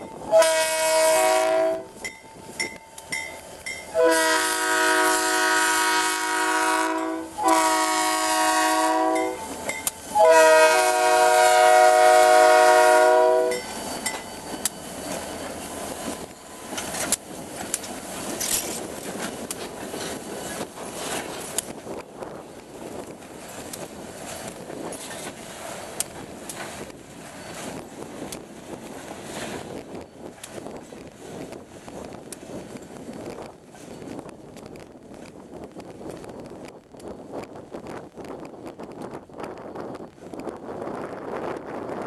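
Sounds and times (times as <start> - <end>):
locomotive air horn blasts: 0.3 - 1.9, 3.9 - 9.4, 10.1 - 13.6
wheels clicking over rail joints: 9.2 - 10.2, 13.5 - 37.2.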